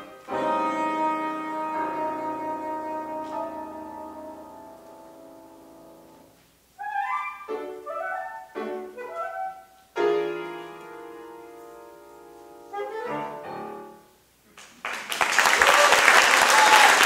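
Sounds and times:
soprano saxophone: 0.0s - 5.6s, 6.8s - 9.9s, 12.6s - 14.2s
grand piano: 0.0s - 14.5s.

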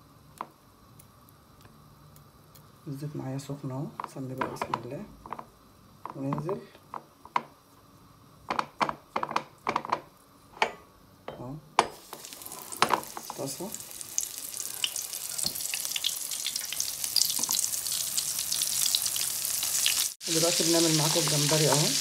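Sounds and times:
fish sizzling in hot oil: 11.9s - 22.0s.

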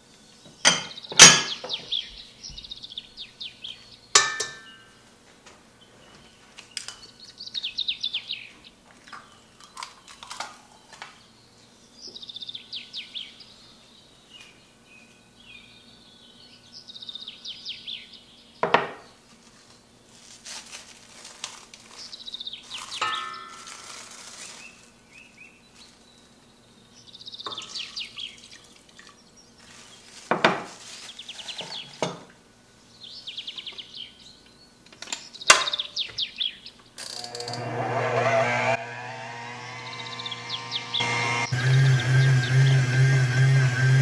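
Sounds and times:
utensils clinking on a steel bowl: 4.2s - 4.8s, 22.8s - 24.2s
small bird chirping: 39.8s - 42.8s.

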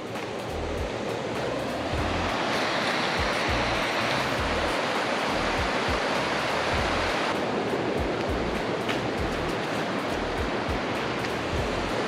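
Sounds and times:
river rushing over rocks: 0.0s - 12.0s
low rumbling: 1.9s - 2.4s.

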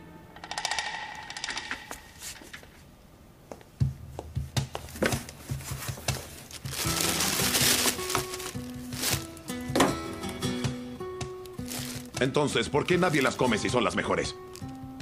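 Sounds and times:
plastic bags crinkling on table: 6.2s - 9.9s, 11.5s - 14.8s.

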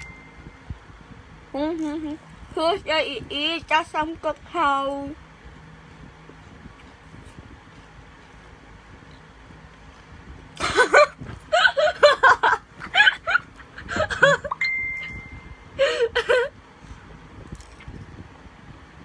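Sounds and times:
woman laughing: 10.6s - 14.6s, 15.8s - 16.5s.

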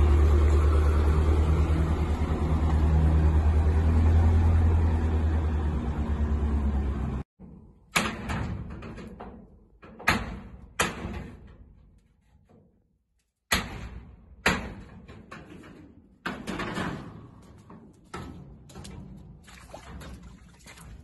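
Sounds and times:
sheet metal banging and rattling: 7.4s - 12.8s, 13.5s - 19.3s.

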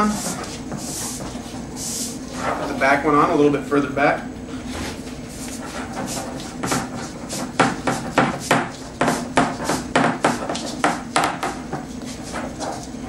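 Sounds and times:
foam rubbing on plastic pipe: 0.0s - 3.1s, 4.8s - 13.0s.

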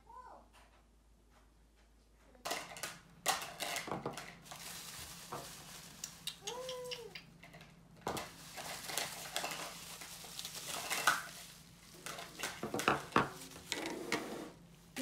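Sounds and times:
rustling: 2.5s - 15.0s
plastic tubes knocking on table: 12.5s - 13.4s.

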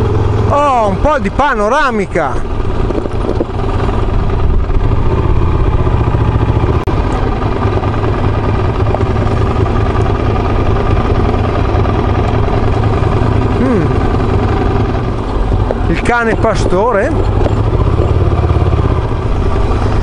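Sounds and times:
motorcycle engine at low revs: 0.0s - 20.0s
wind noise on microphone: 2.7s - 5.5s.

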